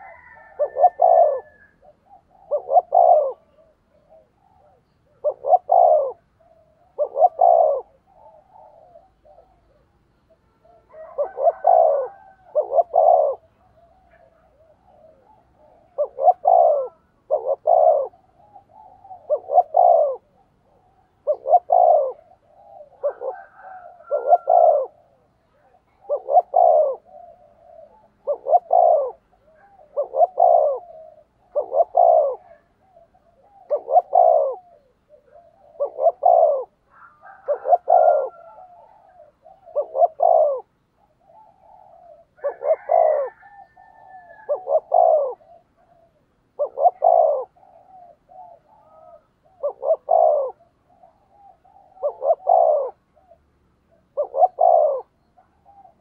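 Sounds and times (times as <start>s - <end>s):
dove cooing: 0.0s - 56.0s.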